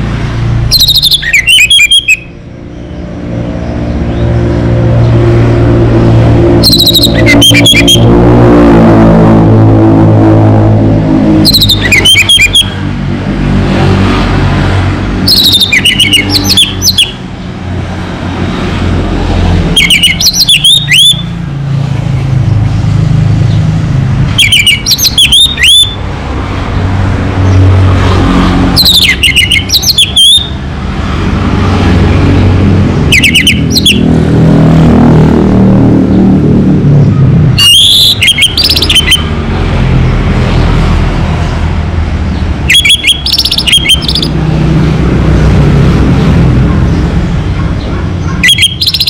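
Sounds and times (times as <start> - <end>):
road traffic rumble: 0.0 - 49.0
thrush singing: 8.9 - 12.8, 15.2 - 17.2, 42.6 - 44.4.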